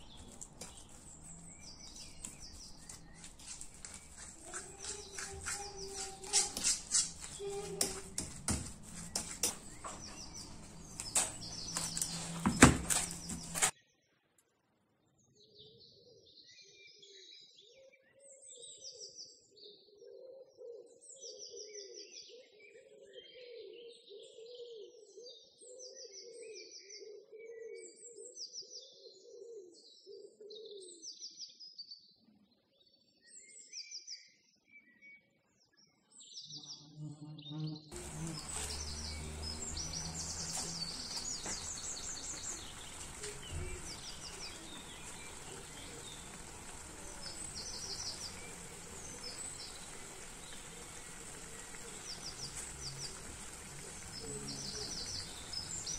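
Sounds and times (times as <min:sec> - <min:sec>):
small birds chirping: 0:00.0 - 0:13.8, 0:31.6 - 0:55.9
metal utensil scraping pan: 0:03.1 - 0:13.7.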